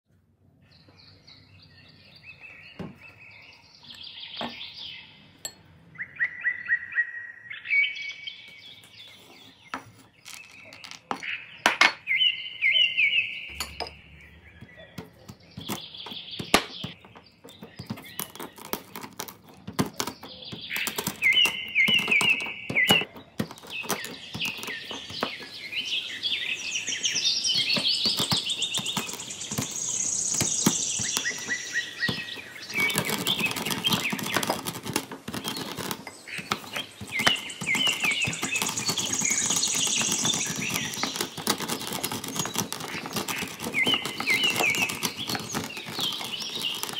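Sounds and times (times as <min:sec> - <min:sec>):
birds chirping: 0:00.3 - 0:46.9
rolling pin crushing nuts: 0:09.0 - 0:12.0, 0:14.6 - 0:46.9.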